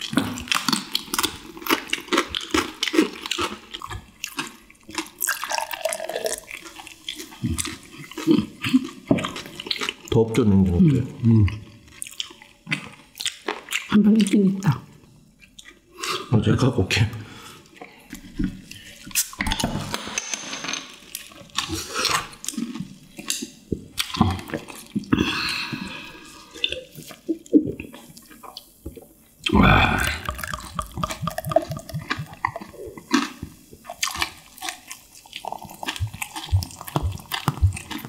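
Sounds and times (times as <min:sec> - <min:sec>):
liquid glugging into glass: 0:29.8 - 0:32.6.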